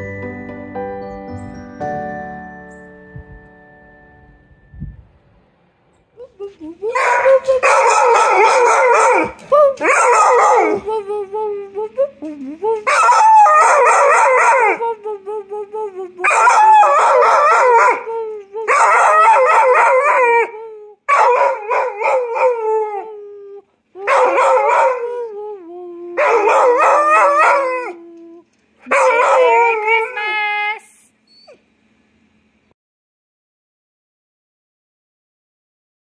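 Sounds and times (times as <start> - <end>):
dog howling: 6.8 - 12.0, 12.7 - 15.0, 16.2 - 25.5, 26.2 - 30.3
dog whining: 31.2 - 31.7.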